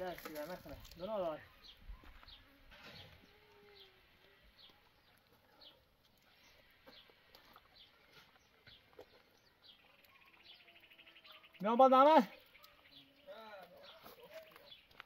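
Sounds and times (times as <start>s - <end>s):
faint high bird chirp: 1.3s - 15.0s.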